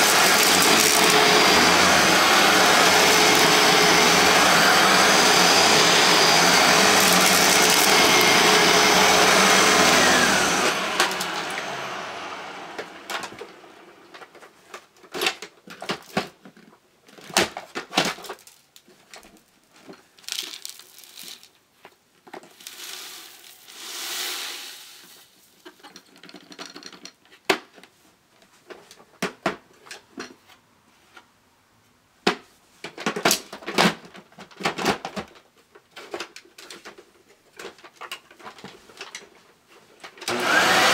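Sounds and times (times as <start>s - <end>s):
vacuum cleaner motor winding down: 0.0s - 14.2s, 23.7s - 25.0s, 40.2s - 40.9s
rustling: 14.2s - 29.1s
debris poured onto carpet: 20.2s - 21.6s, 22.5s - 25.5s.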